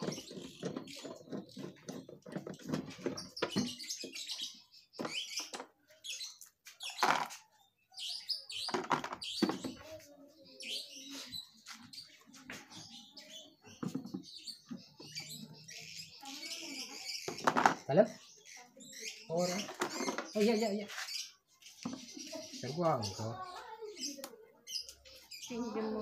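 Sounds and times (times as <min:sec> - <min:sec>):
plastic scraping and creaking: 0:00.0 - 0:03.8, 0:08.6 - 0:09.8, 0:17.3 - 0:17.9, 0:19.6 - 0:20.4
plastic knocks: 0:08.7 - 0:09.7.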